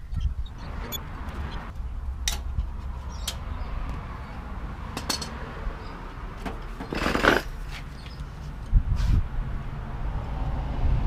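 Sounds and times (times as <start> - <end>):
tools clinking on metal: 5.0 - 5.4.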